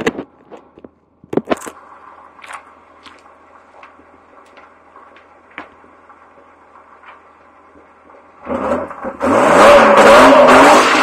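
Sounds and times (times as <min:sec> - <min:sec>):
car engine idling: 0:00.2 - 0:09.4.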